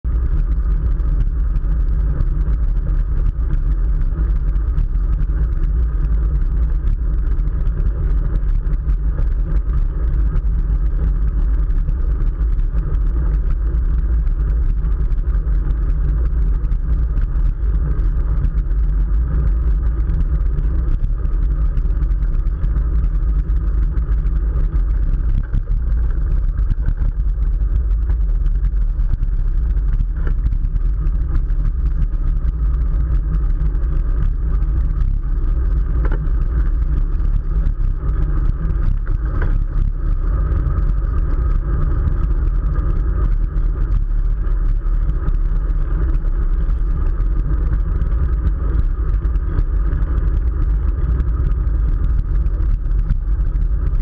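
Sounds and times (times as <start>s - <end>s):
wind rumble on microphone: 0.0s - 54.0s.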